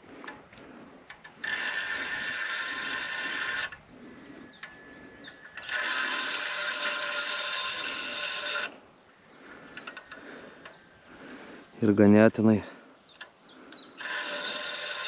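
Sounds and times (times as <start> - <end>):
reel clicks: 0.2 - 3.8, 4.6 - 8.7, 13.2 - 15.0
fishing reel whirring: 1.4 - 3.8, 4.5 - 8.7, 13.7 - 15.0.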